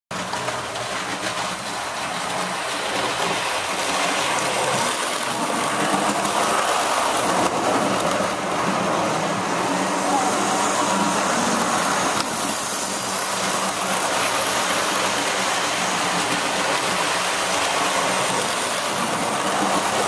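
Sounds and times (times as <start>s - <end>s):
model train motor whirring: 0.2s - 20.0s.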